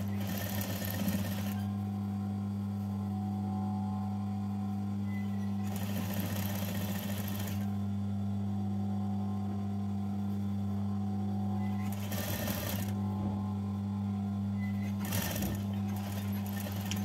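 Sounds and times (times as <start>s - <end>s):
sewing machine stitching: 0.0s - 1.6s, 5.6s - 7.7s, 11.6s - 13.0s, 14.7s - 17.0s
steady low hum: 0.0s - 17.0s.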